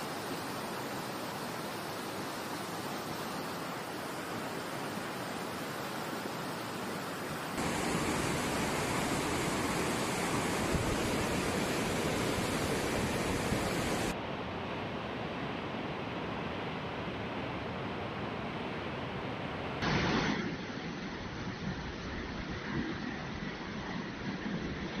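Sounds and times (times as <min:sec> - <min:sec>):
rushing floodwater: 0:00.0 - 0:14.2
waterfall pouring: 0:07.6 - 0:14.1.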